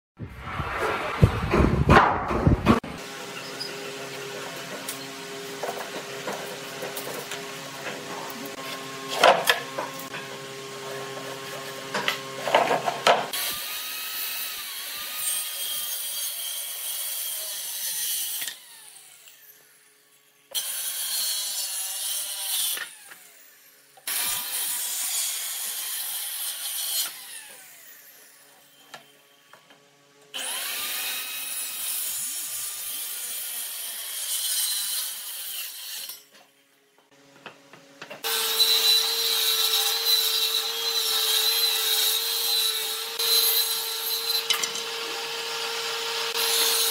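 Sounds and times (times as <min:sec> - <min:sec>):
table saw running: 0:02.8 - 0:19.5, 0:38.2 - 0:46.9
circular saw cutting wood: 0:02.8 - 0:36.3, 0:38.1 - 0:46.9.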